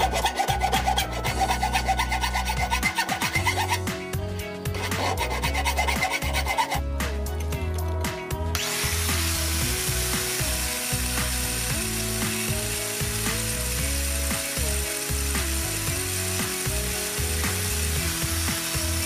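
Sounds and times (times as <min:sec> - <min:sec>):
angle grinder on steel: 0:00.0 - 0:03.9, 0:04.7 - 0:06.9, 0:08.6 - 0:19.0
hand file rasping on steel: 0:00.0 - 0:04.0, 0:04.6 - 0:06.9
background music with bass: 0:00.0 - 0:19.0.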